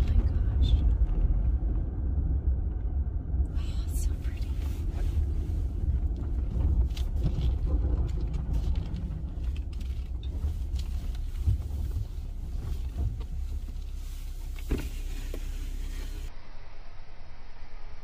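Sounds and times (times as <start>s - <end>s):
vehicle driving with low rumble: 0.0s - 18.0s
light knocks and creaks: 5.9s - 16.0s.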